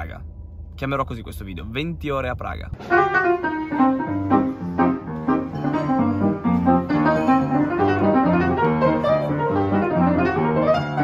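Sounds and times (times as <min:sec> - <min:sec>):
upright piano playing: 0:02.8 - 0:11.0.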